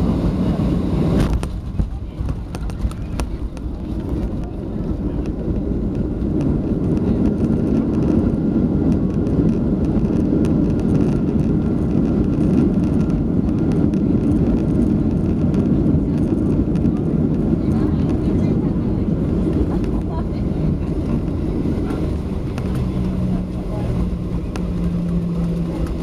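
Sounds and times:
aircraft cabin engine roar: 0:00.0 - 0:26.0.

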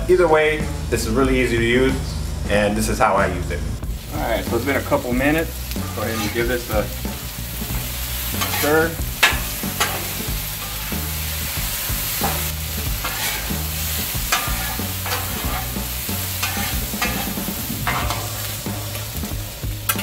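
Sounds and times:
potatoes sizzling on griddle: 0:03.8 - 0:20.0
metal spatula scraping griddle: 0:04.5 - 0:20.0.

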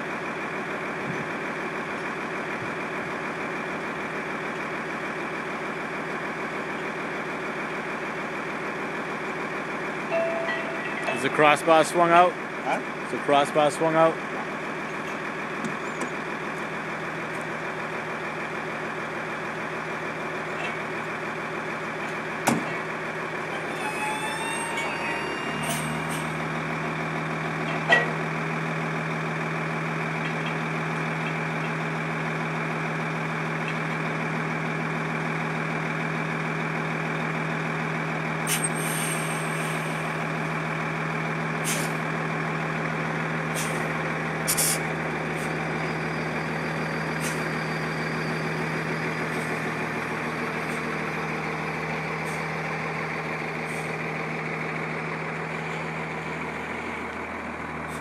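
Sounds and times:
truck engine droning: 0:00.0 - 0:58.0
short hisses: 0:44.5 - 0:44.8.

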